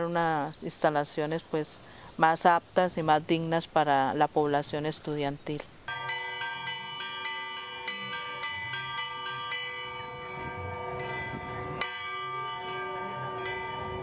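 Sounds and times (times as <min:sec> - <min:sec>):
church bells ringing: 0:05.9 - 0:14.0.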